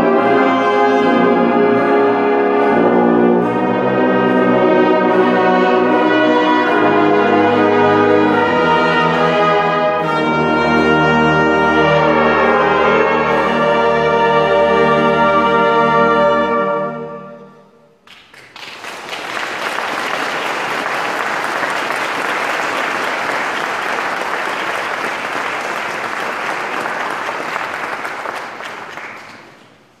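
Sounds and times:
brass band chord: 0:00.0 - 0:18.0
audience applauding: 0:18.0 - 0:30.0.

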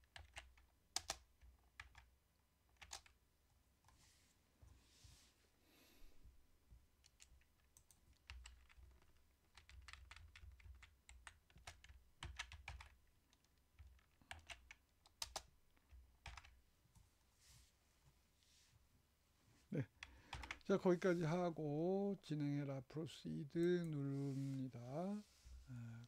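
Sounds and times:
keyboard and mouse clicking: 0:02.8 - 0:03.2, 0:07.0 - 0:16.6.

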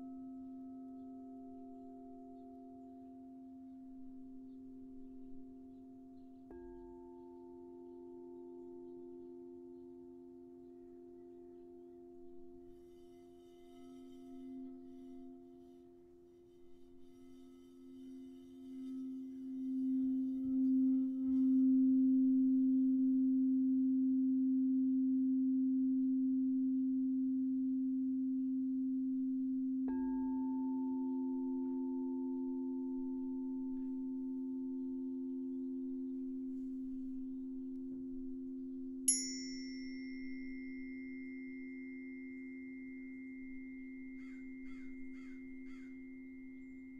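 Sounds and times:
tuning fork ping: 0:00.0 - 0:46.9
singing bowl ringing: 0:05.6 - 0:22.5, 0:29.9 - 0:46.9.

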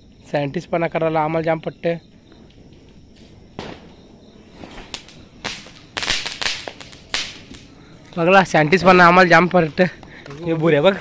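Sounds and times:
firework rocket whooshing and hissing: 0:02.4 - 0:09.1.

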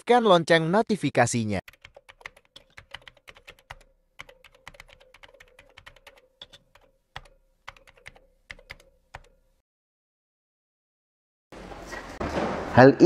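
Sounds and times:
keystroke clicks: 0:01.7 - 0:09.4.

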